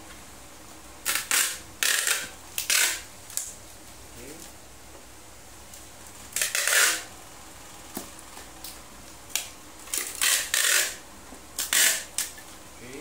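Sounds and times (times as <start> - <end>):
tape dispenser clicks: 1.0 - 3.5, 6.4 - 7.1, 9.3 - 11.0, 11.6 - 12.4
packing tape pulled off dispenser: 1.0 - 3.6, 6.3 - 7.1, 9.3 - 11.0, 11.6 - 12.5.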